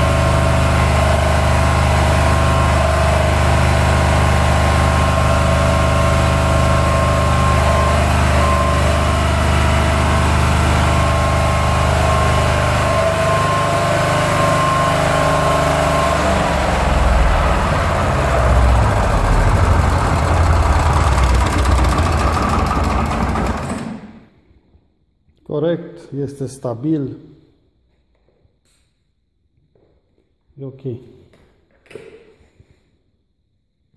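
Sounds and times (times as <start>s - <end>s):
diesel generator engine running: 0.0s - 24.3s
high-pitched whine: 6.8s - 10.2s, 12.4s - 23.8s.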